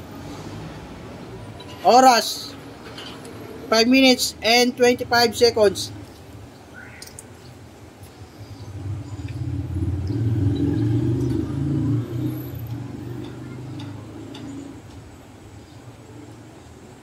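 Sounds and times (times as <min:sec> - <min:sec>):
vehicle engine passing by: 0:00.0 - 0:01.6, 0:08.2 - 0:15.0.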